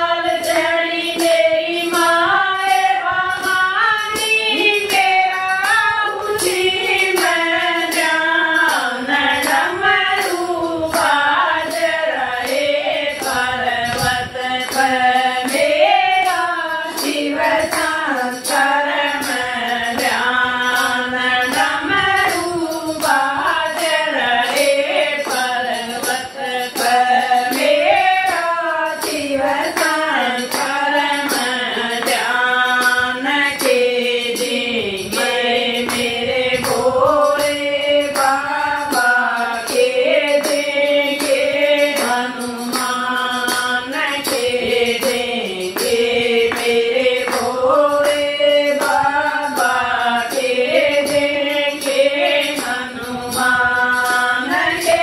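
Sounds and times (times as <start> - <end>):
jingling hand clapper: 0.0 - 55.0
women singing in unison: 0.0 - 55.0
hand-clapping: 16.2 - 18.6, 26.8 - 33.8, 35.2 - 52.8.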